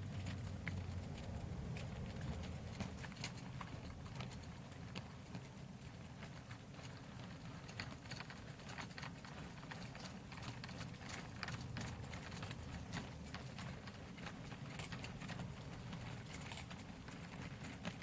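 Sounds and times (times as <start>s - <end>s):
low rolling rumble: 0.0s - 4.5s.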